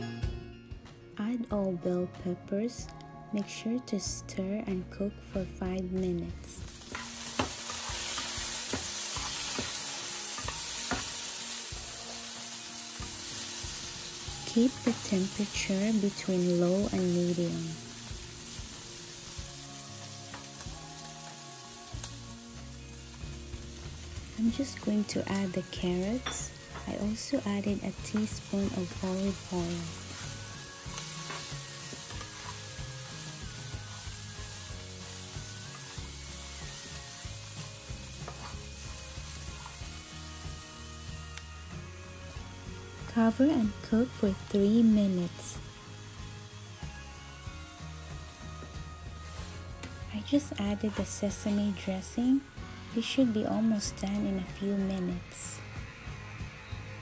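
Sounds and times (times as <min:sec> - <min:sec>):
soft background music: 0:00.0 - 0:57.0
vegetables sizzling in frying pan: 0:06.2 - 0:57.0
spatula scraping pan: 0:06.9 - 0:11.5, 0:38.2 - 0:38.7.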